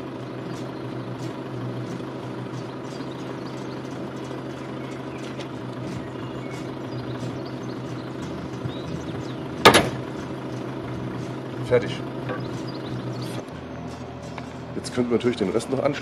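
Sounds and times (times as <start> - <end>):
vehicle engine idling: 0.0 - 16.0
coupling head snapping shut: 9.6 - 10.0.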